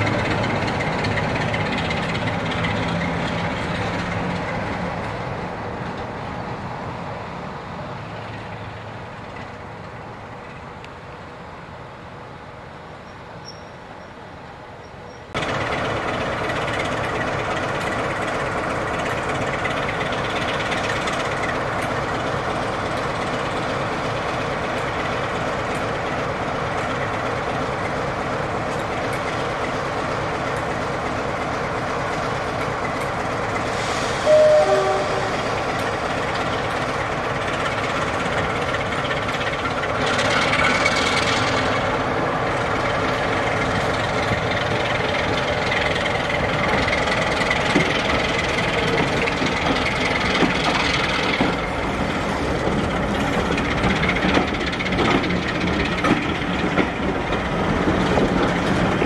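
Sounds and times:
wheels clicking over rail joints: 0:00.0 - 0:06.2, 0:14.8 - 0:33.7, 0:35.5 - 0:59.0
diesel locomotive engine: 0:00.0 - 0:59.0
train horn: 0:34.2 - 0:35.7.

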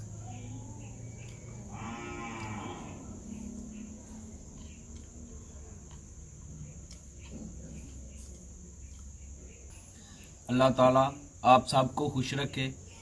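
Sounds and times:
cow mooing: 0:01.6 - 0:03.2.

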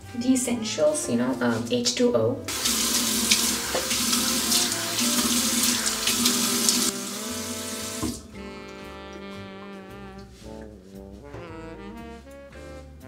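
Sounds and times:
background music: 0:00.0 - 0:13.0
tap running into sink: 0:02.5 - 0:08.4
water splashing on face: 0:02.5 - 0:08.8.

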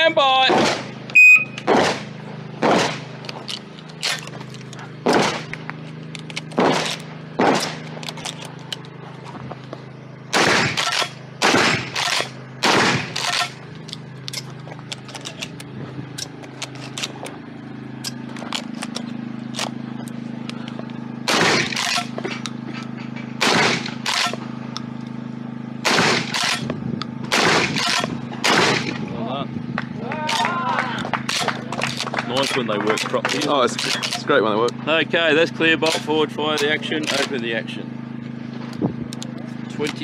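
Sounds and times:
shotgun firing: 0:00.5 - 0:00.9, 0:01.6 - 0:03.1, 0:05.0 - 0:05.5, 0:06.6 - 0:07.8, 0:10.3 - 0:13.5, 0:21.3 - 0:22.1, 0:23.4 - 0:24.3, 0:25.8 - 0:26.6, 0:27.3 - 0:29.0.

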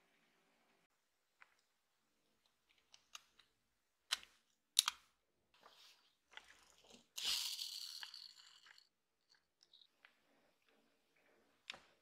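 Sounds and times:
plastic parts clicking: 0:02.7 - 0:05.1.

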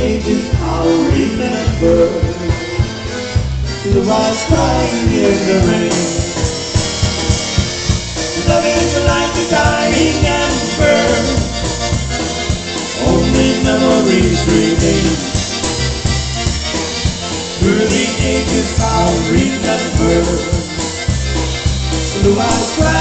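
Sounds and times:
accordion: 0:00.0 - 0:23.0
electric guitar: 0:00.0 - 0:23.0
steady drum beat: 0:00.0 - 0:23.0.

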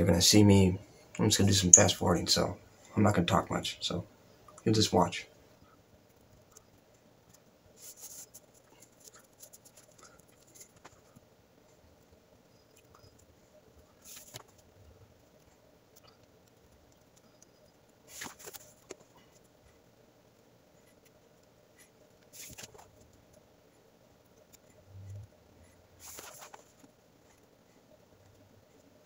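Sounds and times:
faint room hum: 0:00.0 - 0:29.0
cord rustling and swishing: 0:22.3 - 0:23.1, 0:26.0 - 0:26.9.

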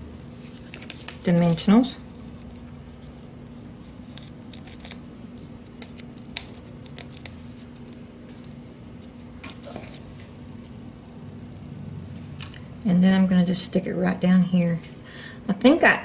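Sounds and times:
faint steady hum: 0:00.0 - 0:16.0
cardstock clicking and crinkling: 0:05.7 - 0:08.8.

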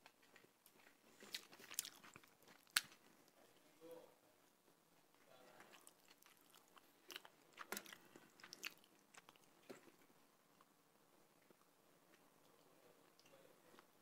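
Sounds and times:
wet chewing close to microphone: 0:00.1 - 0:03.4, 0:05.4 - 0:10.1.

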